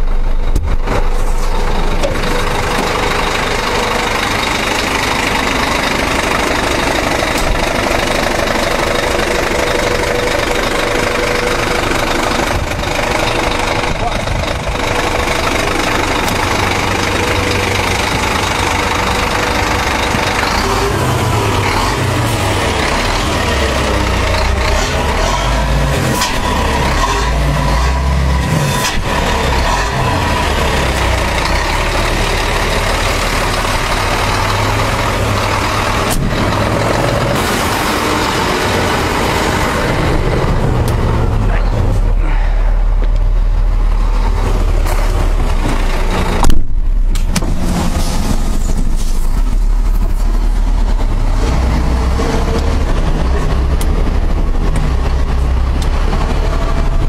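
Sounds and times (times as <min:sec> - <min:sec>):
pickup truck driving on dirt road: 0:00.0 - 0:57.0.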